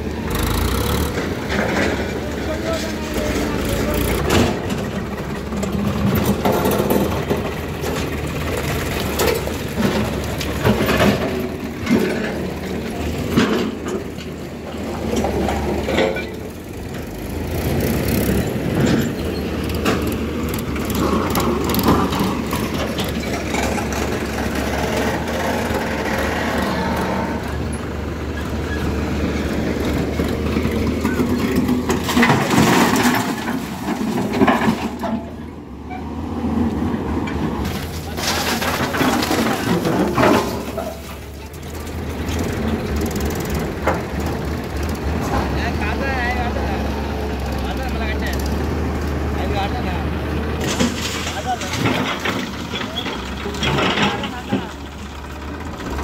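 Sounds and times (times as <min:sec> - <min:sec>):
diesel engines running: 0:00.0 - 0:56.0
earth and stones dropping into trolley: 0:30.8 - 0:35.4, 0:37.3 - 0:42.5, 0:50.6 - 0:54.8.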